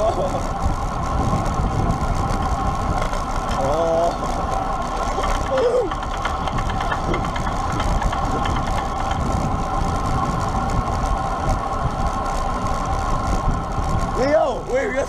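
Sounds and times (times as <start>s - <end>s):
steady hum: 0.0s - 15.0s
wind buffeting microphone: 0.0s - 15.0s.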